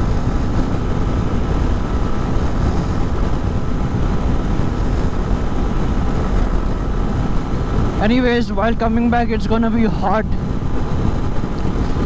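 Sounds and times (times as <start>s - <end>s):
motorcycle engine running: 0.0s - 8.1s
road noise: 0.0s - 12.0s
wind rushing: 0.0s - 12.0s.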